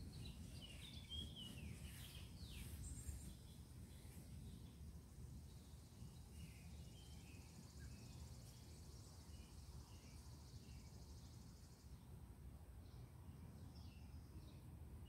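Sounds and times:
bird chirps: 0.0s - 4.6s.

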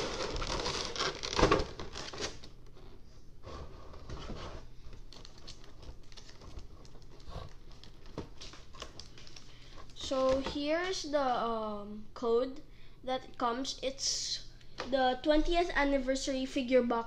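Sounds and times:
packaging rustling: 0.0s - 2.5s, 4.8s - 10.4s.

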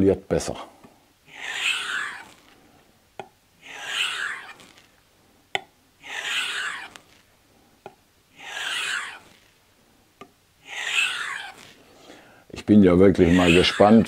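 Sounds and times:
knife rubbing on leather strop: 6.0s - 7.2s, 8.4s - 9.6s, 10.7s - 11.8s.

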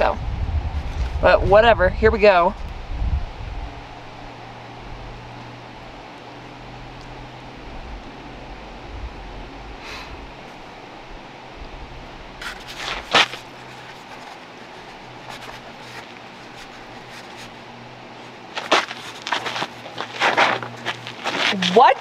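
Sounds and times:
faint low hum: 0.0s - 22.0s
rustling crinkling handling noise: 12.4s - 22.0s.

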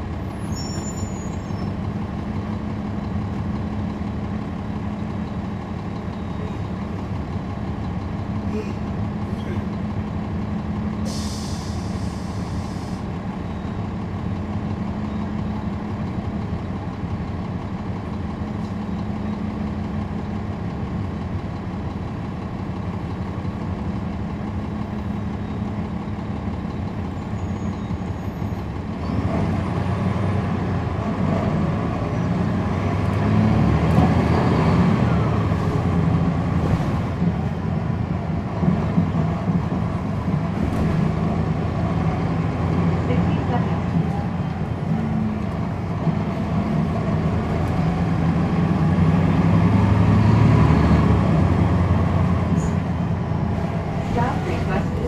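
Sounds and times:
bus diesel engine: 0.0s - 55.0s
hiss of air: 11.1s - 13.0s.

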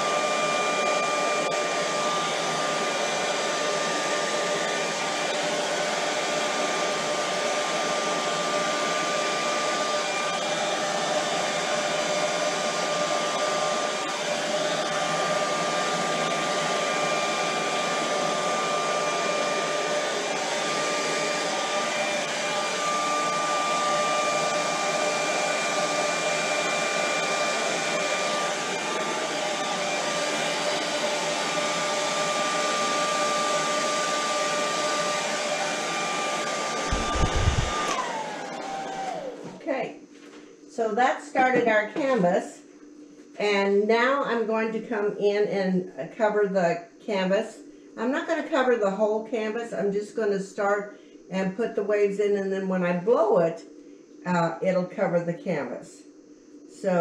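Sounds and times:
hair dryer running: 0.0s - 39.6s.

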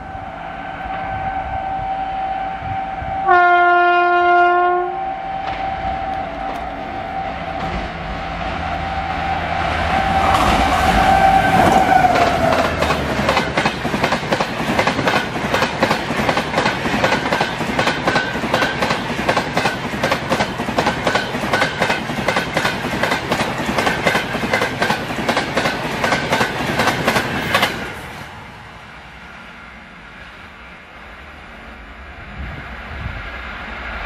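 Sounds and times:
train horn: 0.0s - 13.2s
locomotive passing at speed: 0.0s - 34.0s
train wheels clattering on rails: 7.5s - 8.1s, 10.2s - 28.2s.

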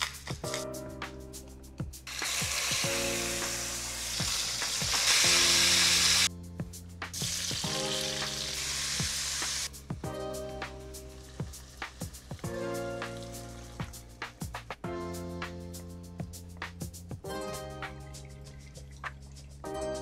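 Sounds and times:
background music with beat: 0.0s - 20.0s
chicken sizzling in hot fat: 2.0s - 6.3s, 7.1s - 9.8s, 10.9s - 13.8s
onions sizzling while stirred: 2.1s - 6.3s, 7.2s - 9.7s.

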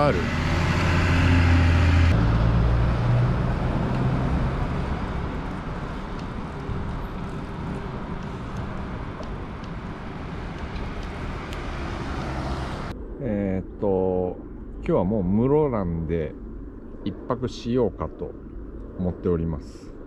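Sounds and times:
motor vehicle humming: 0.0s - 13.2s.

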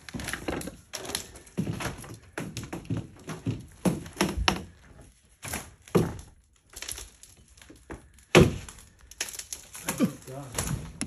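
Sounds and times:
footsteps on rubble floor: 0.0s - 8.2s.

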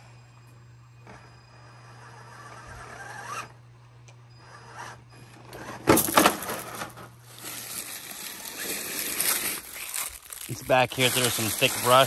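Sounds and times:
toy car motor whirring: 1.0s - 3.6s, 4.3s - 6.1s, 7.3s - 12.0s
brush scraping: 7.3s - 12.0s.

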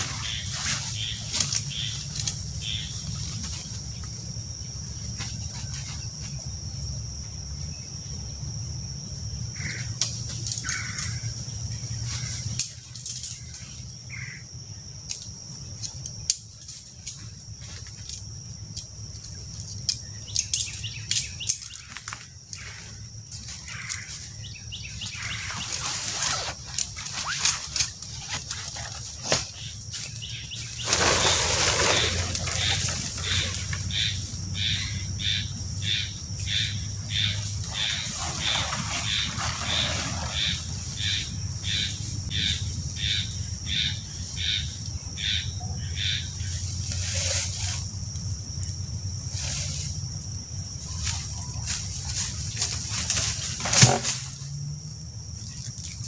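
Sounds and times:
tent fabric rustling: 0.0s - 3.9s, 23.6s - 33.8s, 37.4s - 41.2s
steps on dry leaves: 0.0s - 4.0s, 22.6s - 34.3s, 37.2s - 42.5s.

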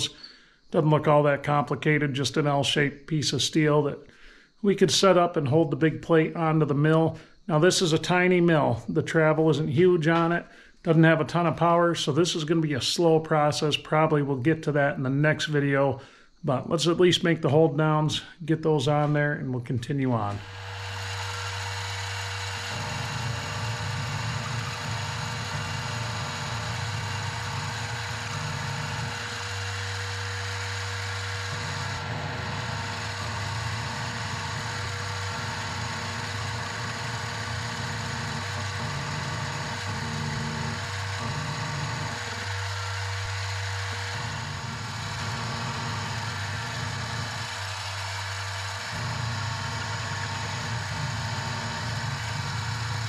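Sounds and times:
end mill cutting steel: 20.0s - 53.0s
mill motor humming: 20.1s - 53.0s.

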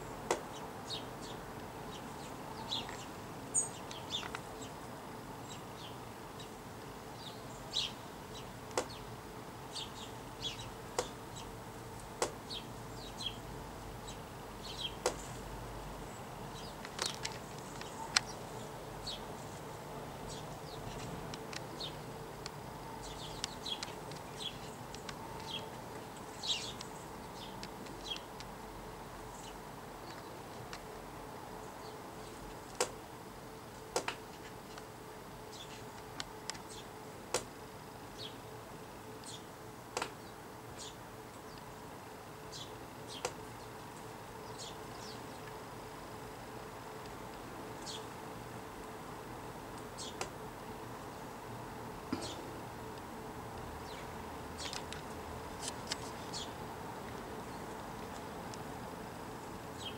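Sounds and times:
sparrows chirping: 0.0s - 4.8s, 5.4s - 28.4s, 29.2s - 30.6s, 35.4s - 36.0s, 36.6s - 37.0s, 38.1s - 38.5s, 39.1s - 45.6s, 47.8s - 48.2s, 49.8s - 50.4s, 52.1s - 52.6s, 53.8s - 56.7s, 59.3s - 59.9s
faint steady hum: 0.0s - 59.9s.

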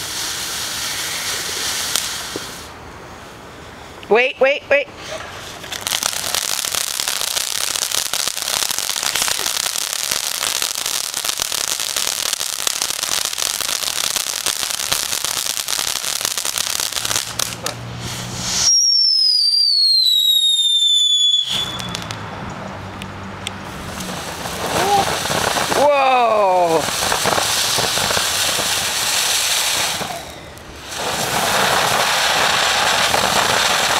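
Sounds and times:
firework crackling hiss: 0.0s - 3.9s, 5.0s - 22.2s, 23.5s - 33.9s
firework whistle sliding down: 18.1s - 22.2s, 28.9s - 33.9s.

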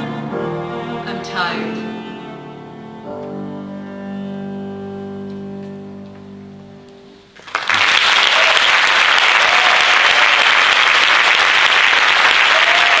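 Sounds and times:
audience applause: 7.4s - 13.0s.

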